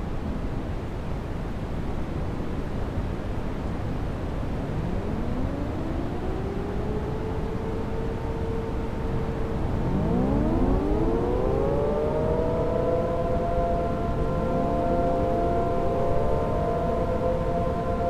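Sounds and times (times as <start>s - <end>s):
warning sirens winding up: 4.6s - 18.0s.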